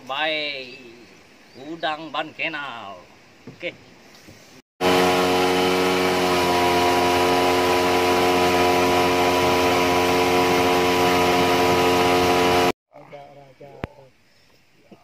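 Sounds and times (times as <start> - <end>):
outboard motor humming: 4.8 - 12.8.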